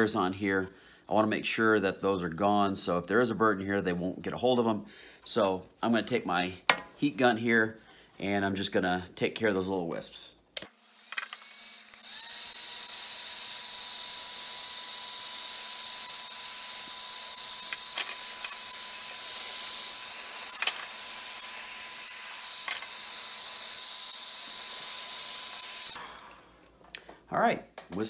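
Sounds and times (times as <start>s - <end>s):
heat gun blowing air: 10.7s - 26.7s.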